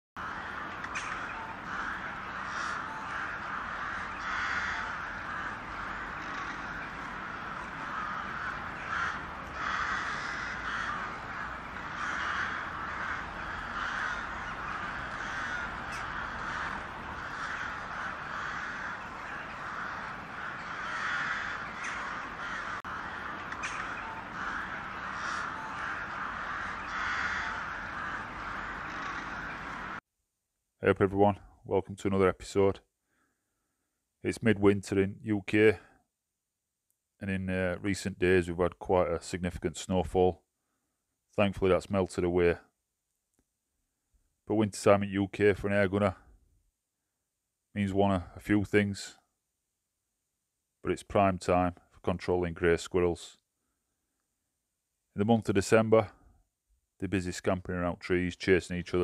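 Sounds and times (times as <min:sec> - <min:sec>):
crows cawing: 0:00.2 - 0:30.0, 0:33.1 - 0:33.8.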